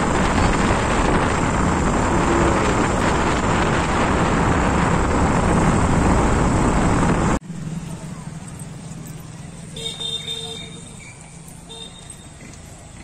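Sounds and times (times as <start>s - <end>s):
wind on microphone: 0.0s - 7.4s
vehicle road noise: 0.0s - 13.0s.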